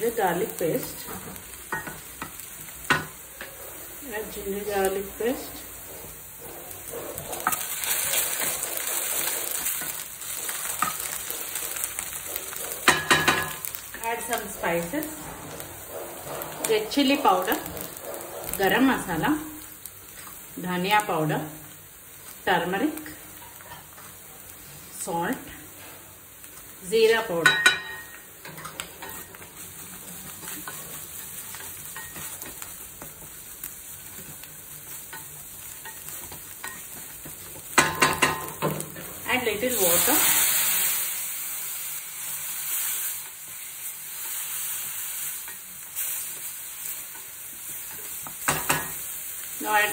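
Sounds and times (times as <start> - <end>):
paste sizzling in hot oil: 0.0 - 49.9
wooden spoon scraping: 3.1 - 20.6, 28.0 - 37.7.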